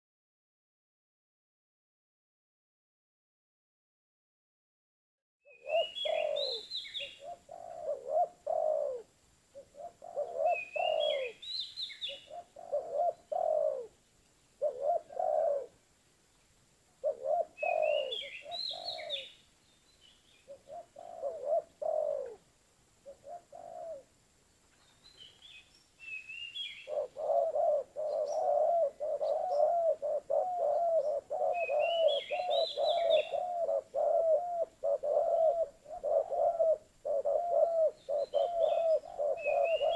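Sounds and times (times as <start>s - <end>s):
bird chirping: 5.4s - 15.7s, 16.3s - 22.4s, 23.0s - 39.9s
dove cooing: 5.5s - 14.0s, 14.6s - 15.8s, 17.0s - 19.4s, 20.5s - 24.1s, 26.8s - 39.9s.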